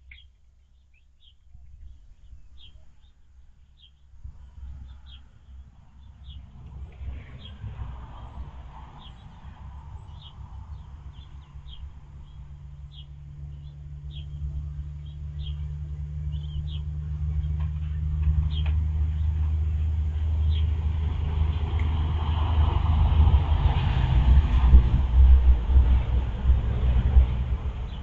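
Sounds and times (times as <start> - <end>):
small birds chirping: 0.0 - 7.7, 8.9 - 20.8
vehicle engine rumble: 0.0 - 28.0.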